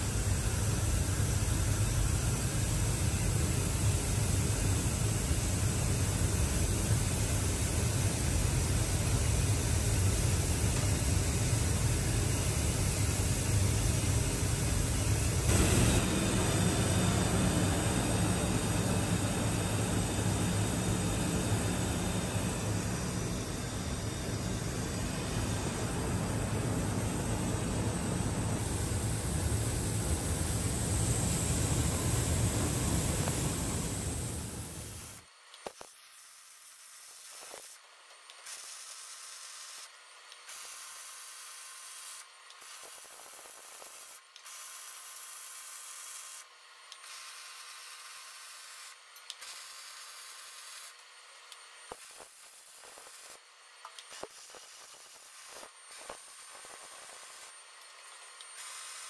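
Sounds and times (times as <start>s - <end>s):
welding arc sizzling: 0.0s - 51.0s, 51.8s - 59.0s
loud steady roar: 15.3s - 35.0s.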